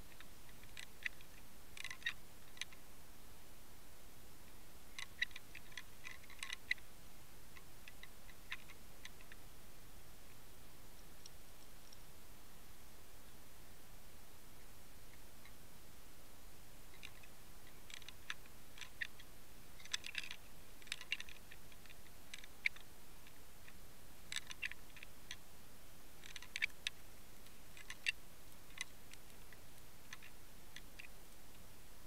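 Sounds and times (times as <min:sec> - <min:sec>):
steady hiss: 0:00.0 - 0:32.0
underwater clicks and ticks: 0:00.1 - 0:02.8, 0:05.0 - 0:06.8, 0:07.6 - 0:09.4, 0:16.9 - 0:25.4, 0:26.2 - 0:31.1.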